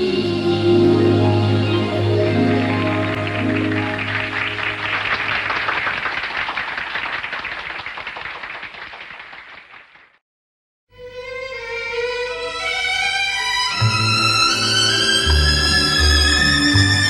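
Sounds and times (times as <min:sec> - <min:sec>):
audience applause: 0:02.0 - 0:10.2, 0:15.0 - 0:17.0
bowed strings: 0:11.0 - 0:17.0.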